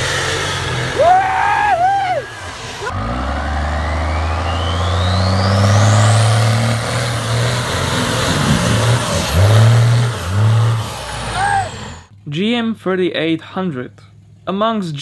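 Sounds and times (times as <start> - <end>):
diesel engine under load: 0.0 - 12.2
turbo whistle: 3.9 - 6.1.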